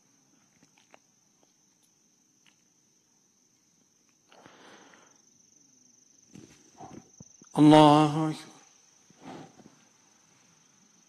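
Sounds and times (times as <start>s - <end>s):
cricket trill: 0.0s - 11.0s
soft rustle: 6.3s - 7.3s, 9.0s - 10.9s.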